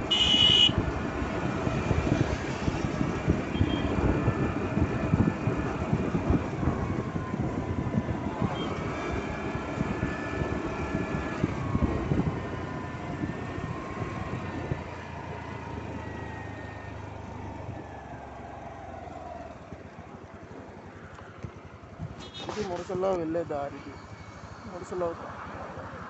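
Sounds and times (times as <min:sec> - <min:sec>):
scooter engine whining: 0:00.0 - 0:22.8
wind buffeting microphone: 0:00.7 - 0:16.3.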